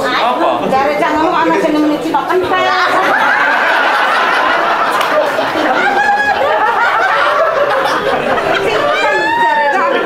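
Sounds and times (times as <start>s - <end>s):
group of people laughing: 2.9s - 10.0s.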